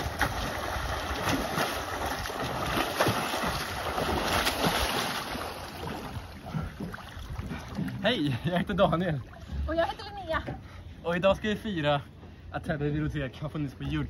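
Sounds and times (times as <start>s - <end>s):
swimmers splashing: 0.0s - 6.8s.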